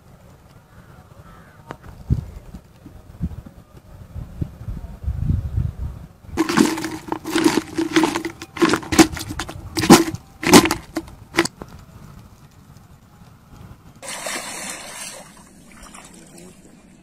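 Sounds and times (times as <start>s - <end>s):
fish knocking in plastic bucket: 6.4s - 11.5s
water splashing: 6.4s - 11.5s, 14.0s - 17.0s.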